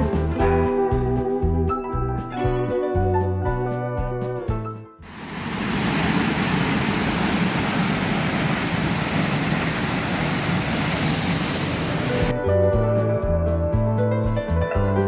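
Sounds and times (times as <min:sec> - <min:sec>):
water jetting and rushing: 0:05.1 - 0:12.3.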